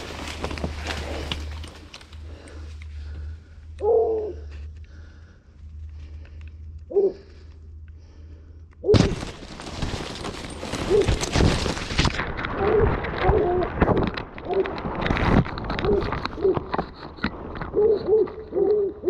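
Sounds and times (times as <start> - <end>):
corn stalks rustling: 0.0 - 3.4, 9.0 - 18.6.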